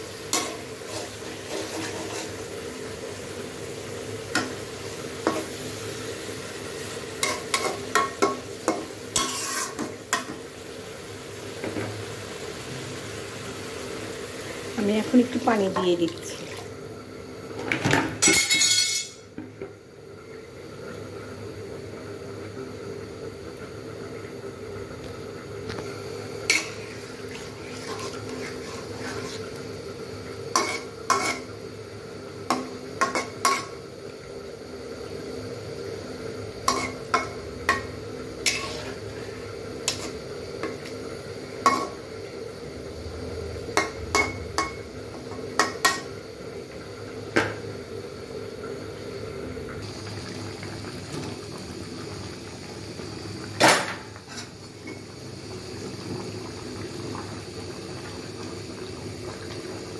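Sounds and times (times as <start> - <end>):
steady hum: 22.0 - 50.3.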